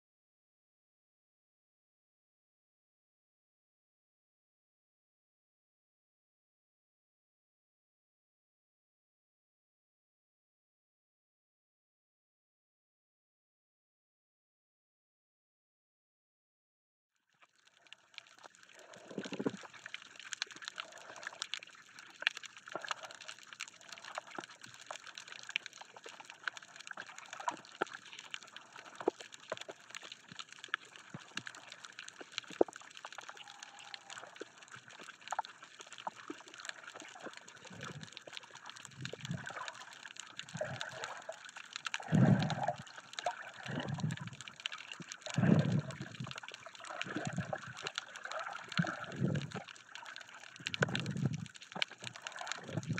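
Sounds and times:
water sloshing around camera: 17.8 - 52.9
underwater hiss with tiny clicks: 18.7 - 52.9.

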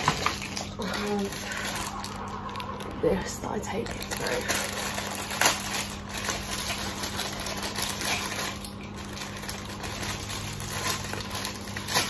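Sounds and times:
plastic bag crinkling: 0.0 - 12.0
plastic bag tearing: 0.0 - 12.0
steady low hum: 0.0 - 12.0.

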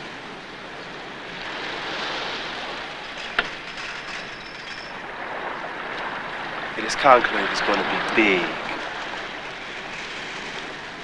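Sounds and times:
rushing outdoor noise: 0.0 - 11.0
faint high squeal: 4.1 - 5.0.

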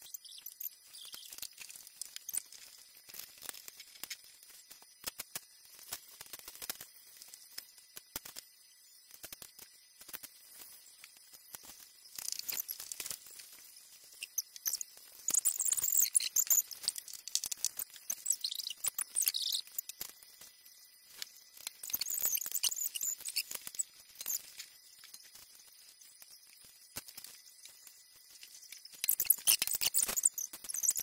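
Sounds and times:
plastic bricks clicking and rattling: 15.3 - 20.0.

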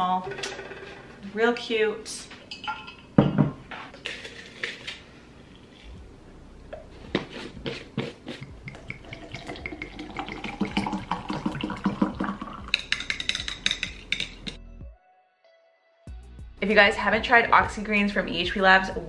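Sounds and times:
water pouring into glass: 8.7 - 13.2.

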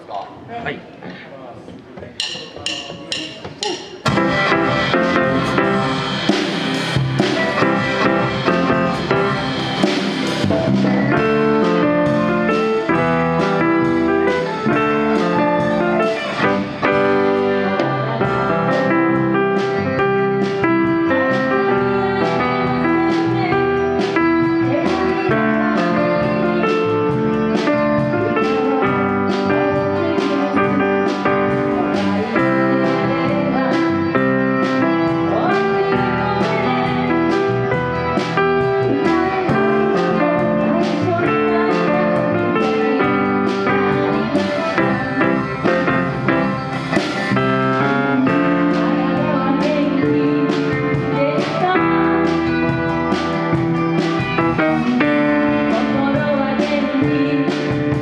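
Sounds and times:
steady drum beat: 2.1 - 58.0
electric guitar: 4.0 - 58.0
electric bass: 4.1 - 58.0
woman singing into a microphone: 15.1 - 19.5, 21.4 - 26.9, 28.0 - 45.5, 47.8 - 52.6, 55.0 - 58.0.

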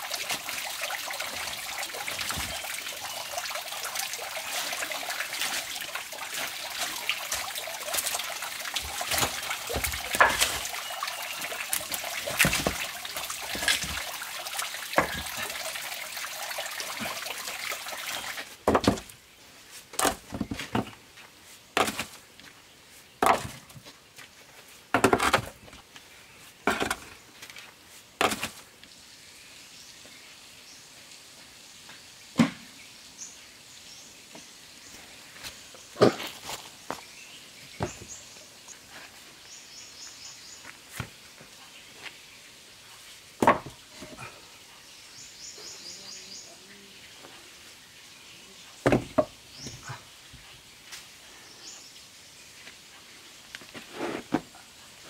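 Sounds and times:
water trickling over rocks: 0.0 - 32.3, 33.0 - 55.0
stones knocking together: 8.8 - 10.7, 11.7 - 14.1, 15.0 - 15.5, 18.6 - 19.1, 20.0 - 21.0, 21.8 - 22.2, 23.2 - 23.8, 28.2 - 28.6, 43.4 - 44.2, 48.8 - 49.8
footsteps on stones and leaves: 35.3 - 37.2.

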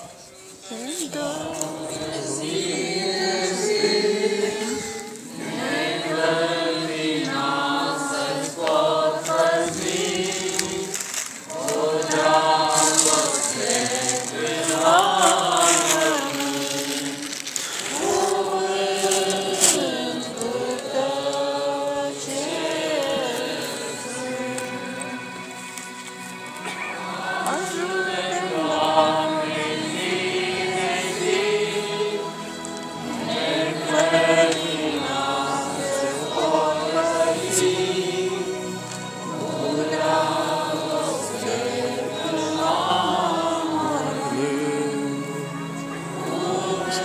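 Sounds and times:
voices singing a hymn: 0.0 - 47.0.

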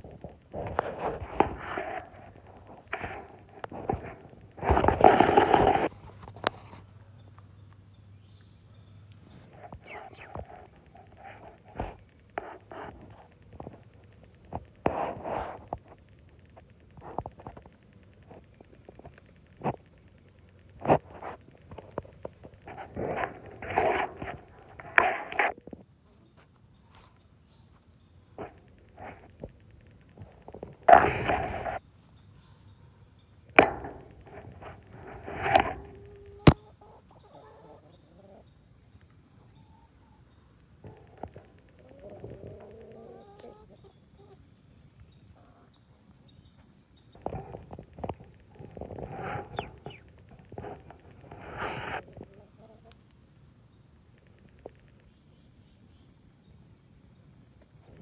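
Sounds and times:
hens clucking: 0.0 - 7.2, 28.4 - 31.8, 33.5 - 53.3.

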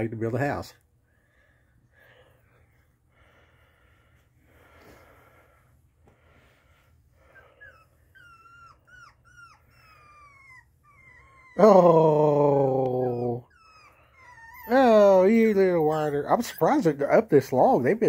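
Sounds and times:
puppies whimpering: 7.2 - 18.0.

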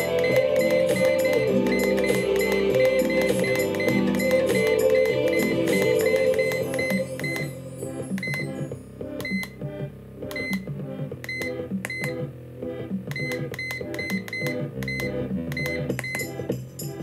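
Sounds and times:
short electronic beeps: 0.0 - 7.5, 8.2 - 8.6, 9.2 - 9.6, 10.3 - 10.7, 11.3 - 12.2, 13.1 - 16.3
instrumental music with beat: 0.0 - 17.0.

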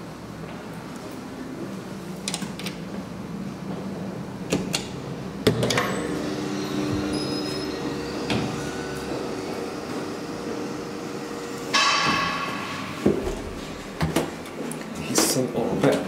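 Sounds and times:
elevator machinery humming: 0.0 - 16.0
loud clunk: 11.6 - 14.4.

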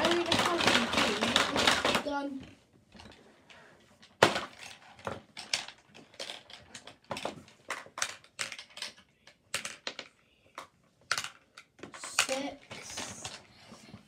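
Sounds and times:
plastic game pieces clacking: 0.0 - 2.3, 4.0 - 13.5.

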